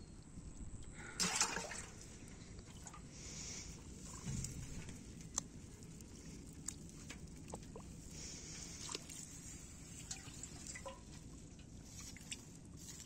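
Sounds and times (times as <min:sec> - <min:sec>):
water trickling and dripping: 0:04.0 - 0:13.0.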